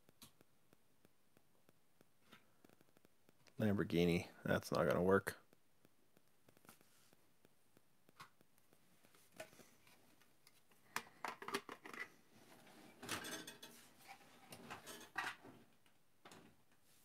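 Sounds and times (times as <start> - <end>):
toy cars and plastic cases clicking: 10.5 - 12.2, 13.0 - 16.6.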